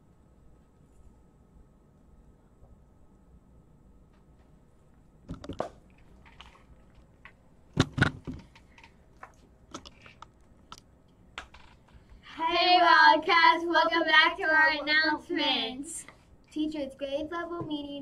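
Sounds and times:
handling clicks and knocks: 5.3 - 10.8.

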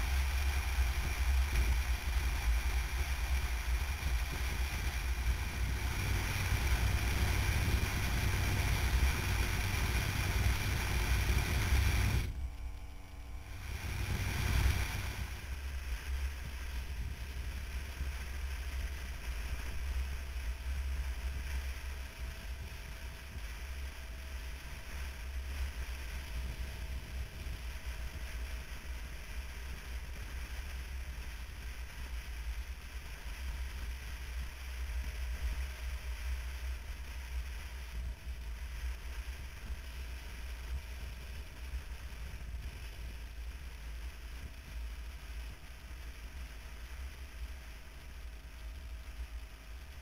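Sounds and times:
road noise: 0.0 - 26.4
motorcycle engine running: 0.0 - 50.0
wind buffeting microphone: 0.1 - 18.1.

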